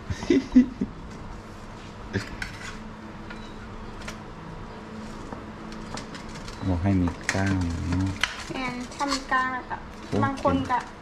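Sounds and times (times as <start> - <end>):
faint steady hum: 0.0 - 11.0
metal spoon scraping metal pan: 2.2 - 2.8, 8.4 - 9.4.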